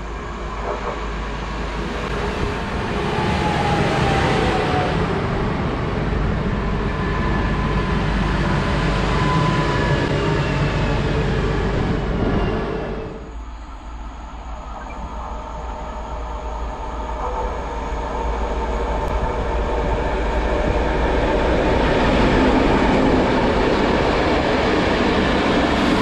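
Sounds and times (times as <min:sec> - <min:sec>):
train wheels rumbling on rail: 0:00.0 - 0:26.0.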